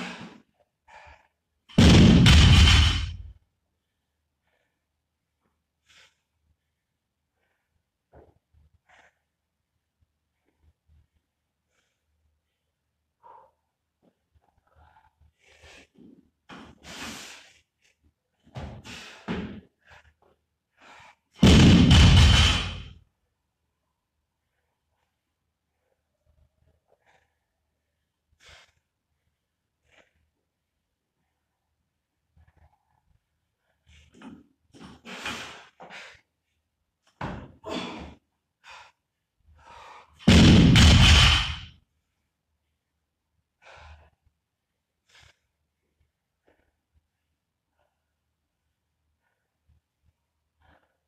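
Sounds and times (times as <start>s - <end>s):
barbell crashing onto floor: 1.8s - 3.3s, 21.4s - 22.9s, 40.3s - 41.7s.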